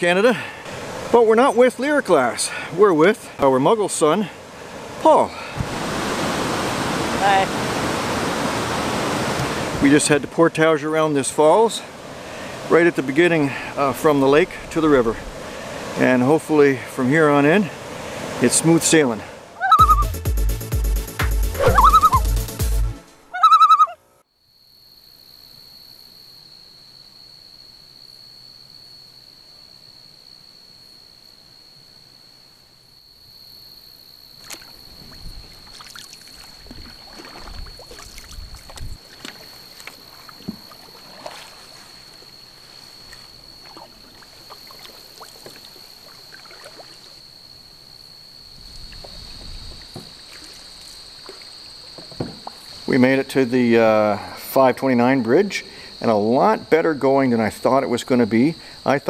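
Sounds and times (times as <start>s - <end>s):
paddle strokes splashing water: 4.6s - 10.3s, 34.4s - 47.2s, 48.8s - 52.8s
light knocks on hull: 52.0s - 52.6s.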